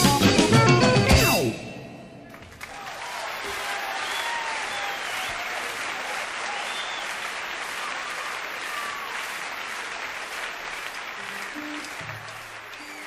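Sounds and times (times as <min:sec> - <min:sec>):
audience applauding: 0:02.2 - 0:13.0
music notes: 0:11.2 - 0:13.0.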